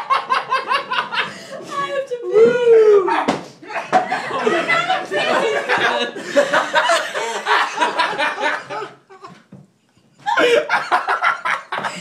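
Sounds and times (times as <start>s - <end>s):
people laughing: 0.0s - 2.0s, 3.6s - 9.4s, 10.2s - 12.0s.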